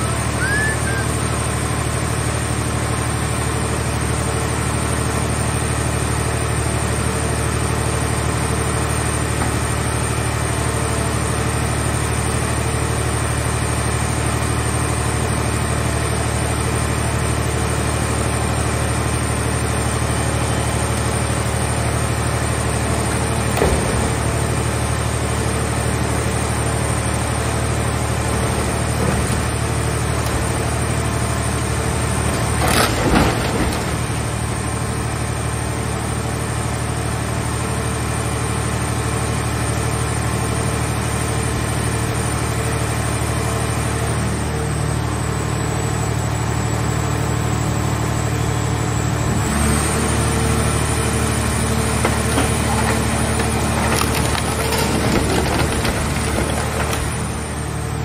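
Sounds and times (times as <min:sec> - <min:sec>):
hydraulic power unit droning: 0:00.0 - 0:37.3, 0:39.5 - 0:58.0
press crushing car body: 0:32.0 - 0:34.4, 0:51.9 - 0:57.6
short creaks: 0:52.0 - 0:57.4.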